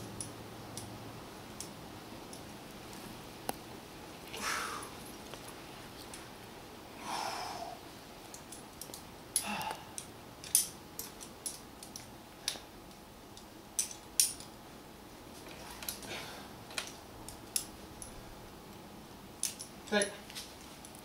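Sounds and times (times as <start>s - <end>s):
metal climbing gear clinking: 4.2s - 6.3s, 8.2s - 14.6s, 15.3s - 18.4s, 19.4s - 21.0s.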